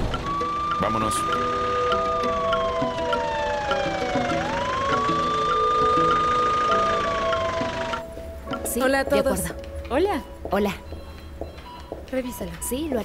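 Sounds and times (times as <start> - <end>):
ambulance siren wailing: 0.0 - 8.1.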